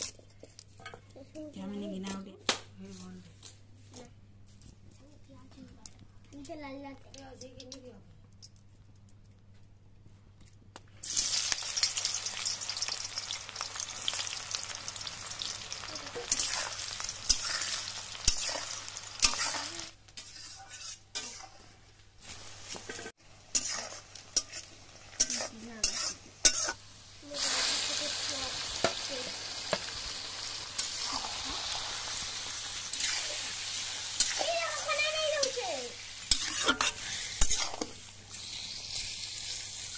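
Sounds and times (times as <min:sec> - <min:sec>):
meat sizzling in hot oil: 0:11.0 - 0:20.4, 0:22.2 - 0:39.9
metal spatula scraping: 0:16.2 - 0:29.0, 0:30.8 - 0:39.1.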